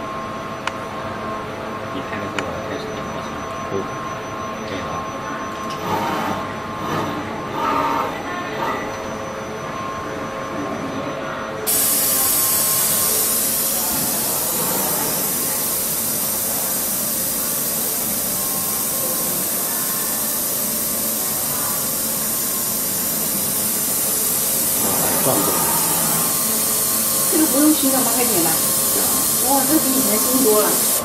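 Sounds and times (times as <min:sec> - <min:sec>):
mechanical background noise: 0:00.0 - 0:31.0.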